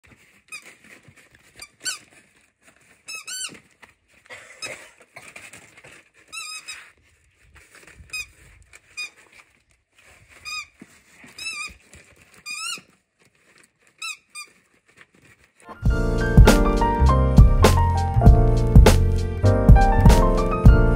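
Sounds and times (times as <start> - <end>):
wrapping paper crinkling: 0.0 - 16.3
rubber chicken toy squeaking: 0.5 - 0.8, 1.6 - 2.1, 3.0 - 3.6, 6.3 - 6.9, 8.1 - 9.2, 10.4 - 13.0, 13.9 - 14.6.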